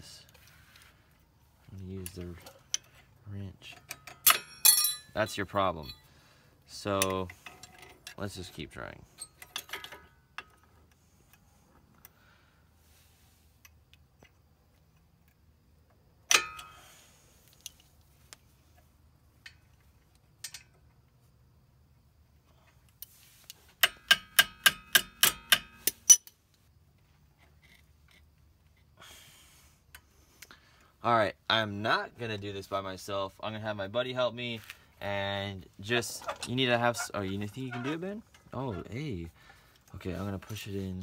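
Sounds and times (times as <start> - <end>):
metal clicks of wrench and spring: 3.6 - 5.1, 6.9 - 8.3, 16.3 - 16.8, 20.4 - 20.8, 23.0 - 26.4.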